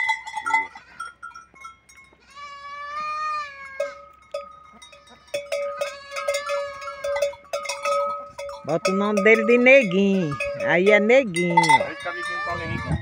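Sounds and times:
metal bell clanking: 0.0 - 2.2, 3.8 - 13.0
goat bleating: 0.4 - 1.2, 2.1 - 7.3, 8.8 - 13.0.

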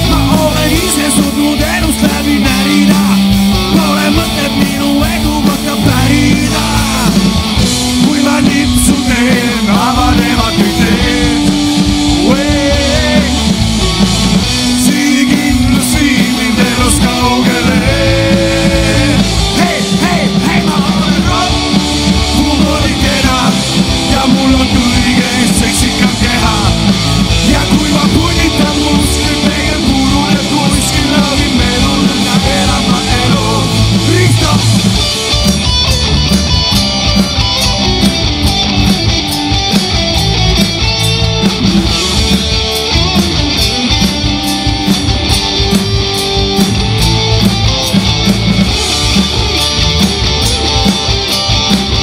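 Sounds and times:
man singing into microphone: 0.0 - 13.6, 14.7 - 34.8
bass guitar: 0.0 - 52.0
drum kit: 0.0 - 52.0
electric guitar: 0.0 - 52.0.

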